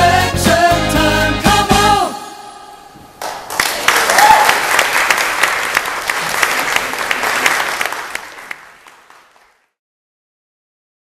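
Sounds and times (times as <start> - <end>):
audience applauding: 3.2 - 9.8.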